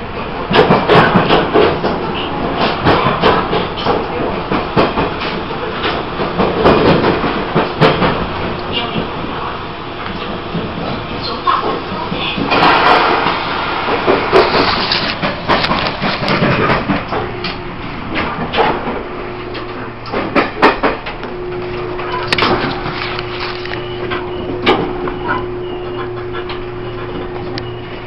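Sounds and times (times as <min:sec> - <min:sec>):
steady hum: 0:13.7 - 0:28.0.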